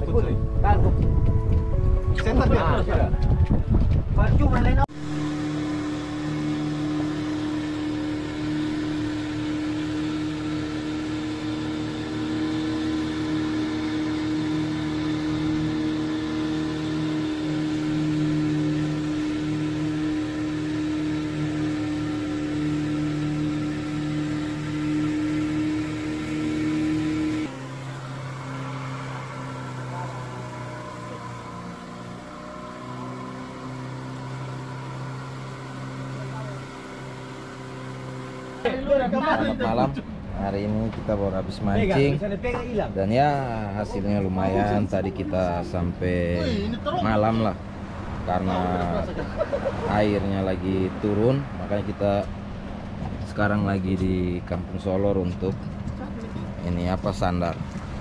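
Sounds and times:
boat engine running: 0.0 - 58.0
low motor hum: 0.0 - 58.0.

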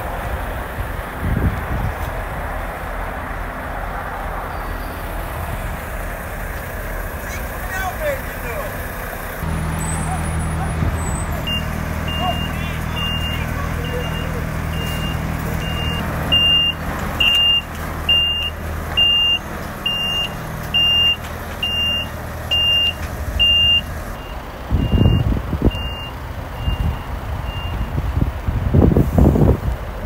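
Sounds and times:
wind buffeting microphone: 0.0 - 6.8, 9.4 - 12.2, 23.0 - 30.0
diesel engine running low: 0.0 - 30.0
reversing alarm beeping: 9.6 - 27.9.

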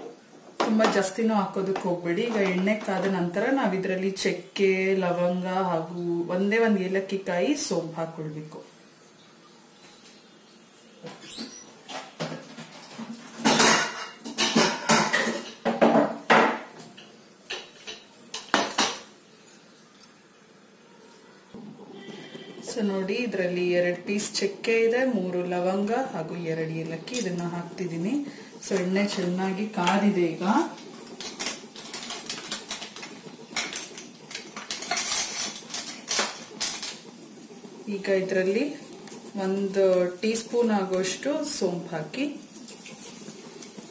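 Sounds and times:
spices sizzling in hot oil: 0.0 - 43.9
dishes and utensils clattering: 11.8 - 19.1, 30.9 - 37.1.

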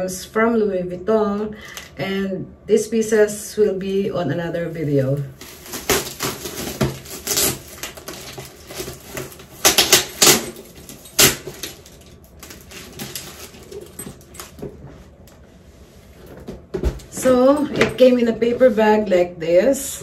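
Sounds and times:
packaging rustling and crinkling: 5.1 - 14.8.

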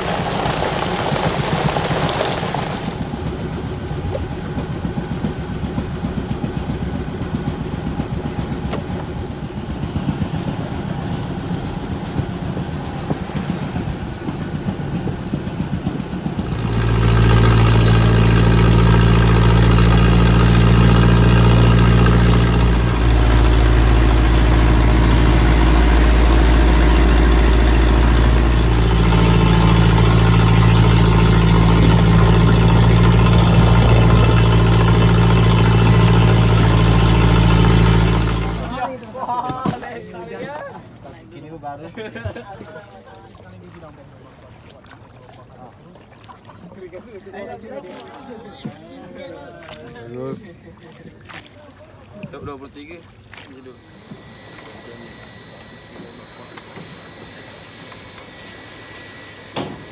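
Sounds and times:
engine chugging with rapid knock: 0.0 - 39.9, 52.1 - 59.9
boat engine drone: 0.0 - 59.9.

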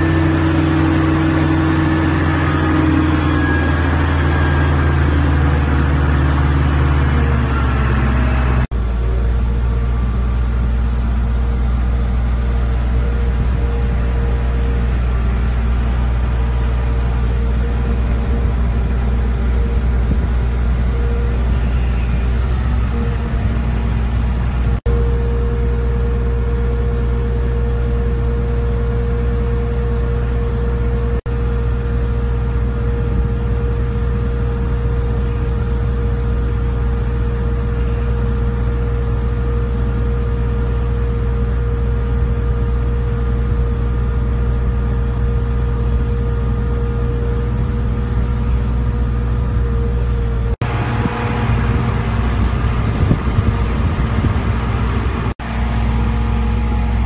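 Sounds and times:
diesel engine running: 0.0 - 57.0
mid-pitched whine: 0.0 - 57.0.

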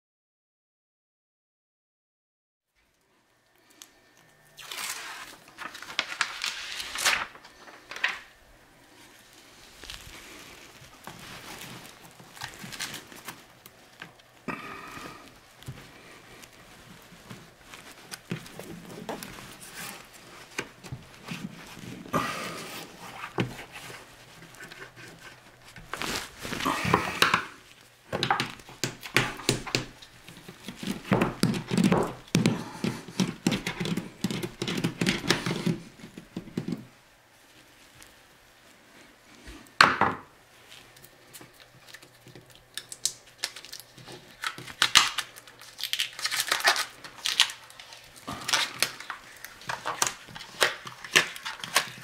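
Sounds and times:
thin metal sheet crinkling: 4.6 - 14.4, 15.3 - 32.3, 40.8 - 52.0.

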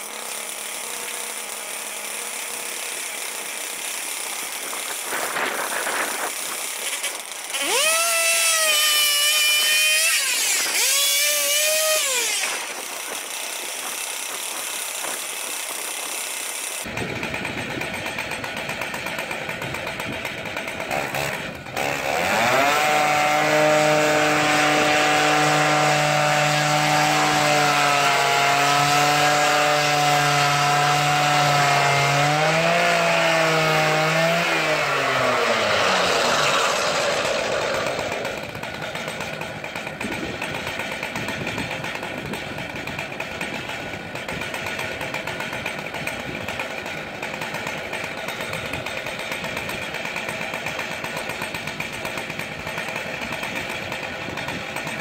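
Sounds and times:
petrol engine revving: 29.6 - 40.5.

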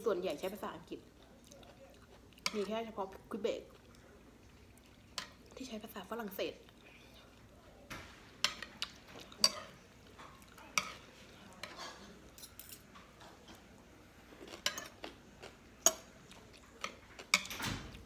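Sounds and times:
cutlery clinking on a plate: 7.9 - 13.6, 14.5 - 15.0, 16.8 - 18.0.

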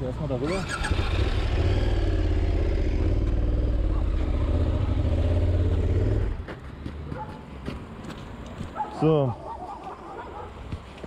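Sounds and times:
motorcycle engine rumbling: 0.0 - 6.5.

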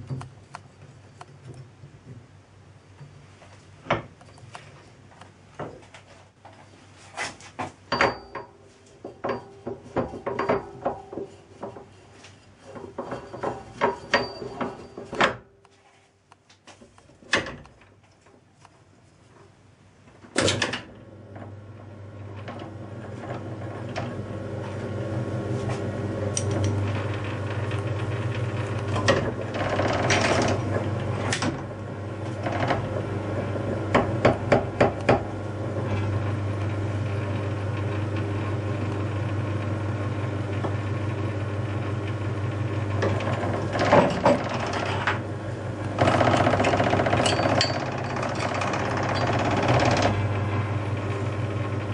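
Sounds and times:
metal clanking and knocking: 7.9 - 12.0, 12.7 - 15.5, 32.3 - 35.3, 43.0 - 45.2, 46.0 - 50.3.

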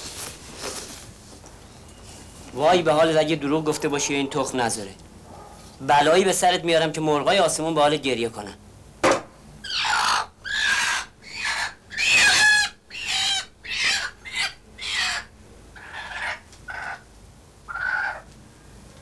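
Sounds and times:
hen squawking and clucking: 9.6 - 18.3.

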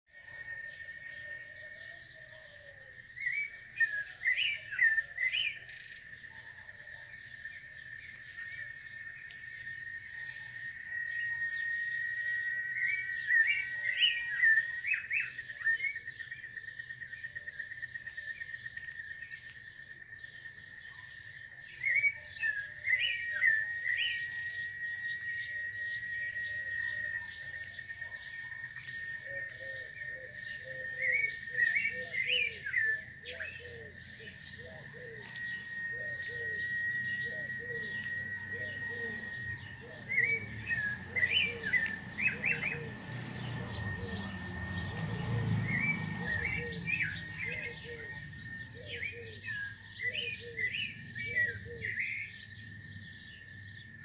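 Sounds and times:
birds chirping: 0.0 - 54.0
high-pitched drone: 22.7 - 52.9.

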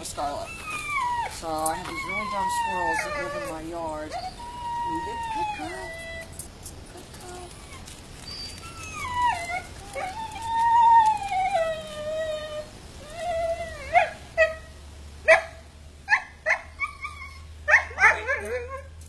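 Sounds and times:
dog whining: 0.0 - 14.6, 16.7 - 18.9
dog yipping: 0.3 - 6.4, 15.3 - 18.9.

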